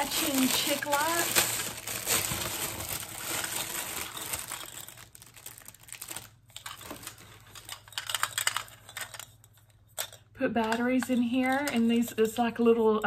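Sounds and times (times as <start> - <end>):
packaging crinkling: 0.0 - 9.6.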